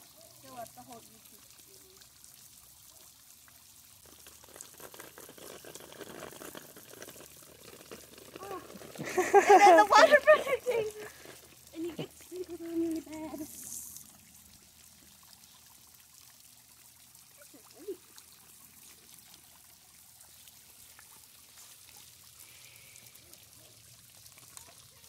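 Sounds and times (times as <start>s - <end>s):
water trickling into pond: 0.0s - 25.0s
plastic bag rustling: 4.0s - 12.1s.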